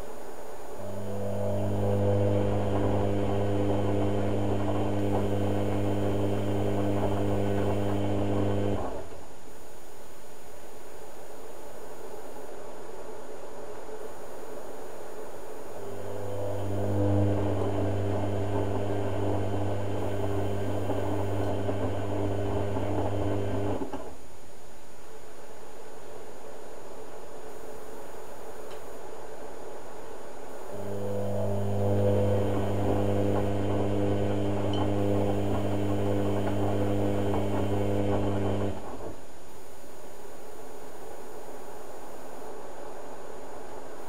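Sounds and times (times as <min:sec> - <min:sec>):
washing machine drum humming: 0:00.8 - 0:09.2, 0:15.8 - 0:24.2, 0:30.7 - 0:39.4.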